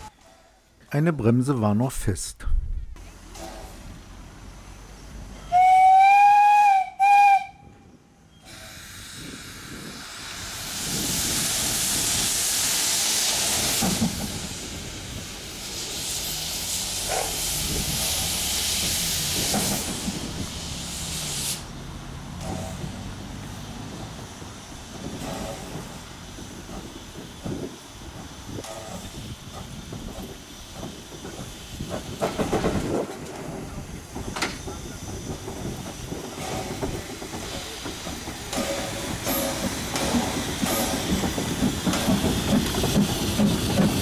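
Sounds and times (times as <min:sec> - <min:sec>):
rail rumbles: 0:00.0 - 0:44.0
steam locomotive whistle: 0:05.4 - 0:07.8, 0:08.4 - 0:09.2
steam hissing: 0:08.3 - 0:44.0.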